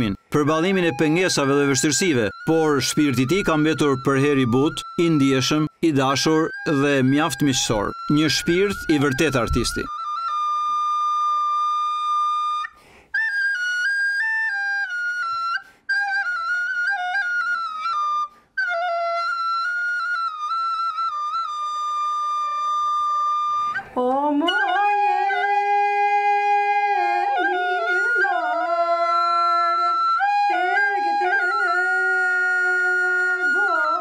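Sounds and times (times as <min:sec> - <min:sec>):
recorder playing slow melody: 0:00.0 - 0:34.0
woman singing: 0:23.9 - 0:34.0.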